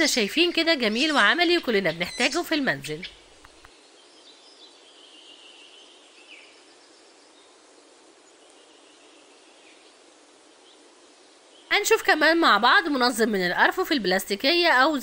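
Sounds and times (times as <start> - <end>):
faint background hiss: 0.0 - 15.0
faint high chirping glides: 0.0 - 15.0
soft ticks: 3.4 - 3.8.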